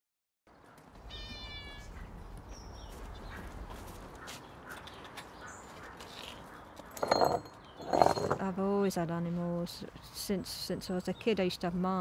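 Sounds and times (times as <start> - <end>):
cat meowing: 1.1 - 2.0.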